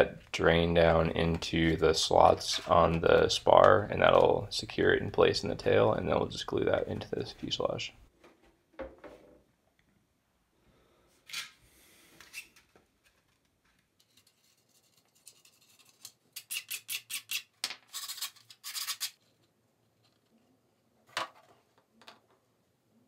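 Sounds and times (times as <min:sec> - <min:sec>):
scratching on plastic parts: 0:12.2 - 0:20.6.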